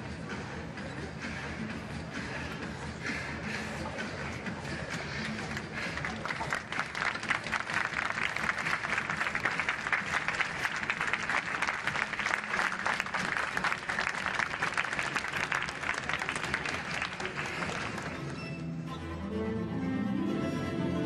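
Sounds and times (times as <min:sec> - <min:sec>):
audience applauding: 0:05.6 - 0:18.4.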